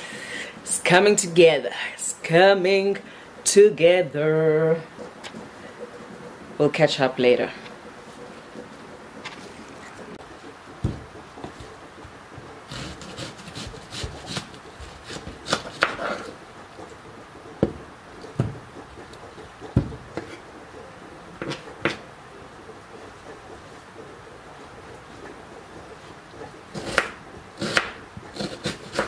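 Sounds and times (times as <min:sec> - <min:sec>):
kitchen knocks and clatter: 0:10.8 - 0:11.6, 0:19.6 - 0:20.4.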